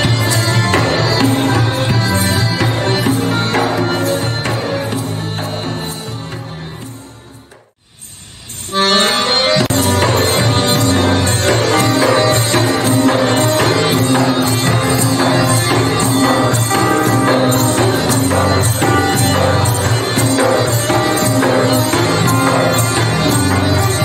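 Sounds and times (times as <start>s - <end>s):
accordion: 0.0s - 7.7s, 8.6s - 24.0s
frame drum beat: 9.6s - 24.0s.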